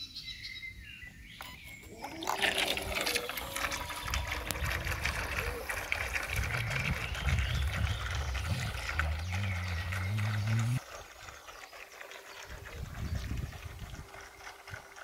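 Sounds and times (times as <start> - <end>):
electric motors humming: 1.8 - 10.9.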